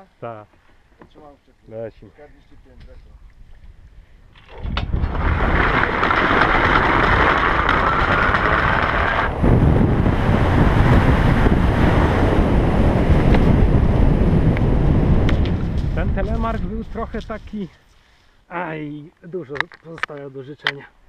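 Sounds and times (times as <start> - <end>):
low wind rush on microphone: 2.4 - 17.8.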